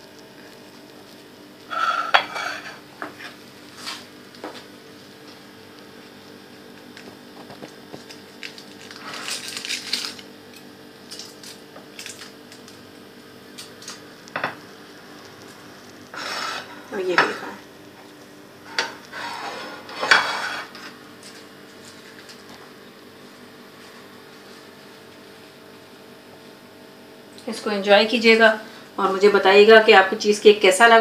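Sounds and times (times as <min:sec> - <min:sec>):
ceramic plate clinking and scraping: 0:01.7 - 0:03.3, 0:18.7 - 0:20.9.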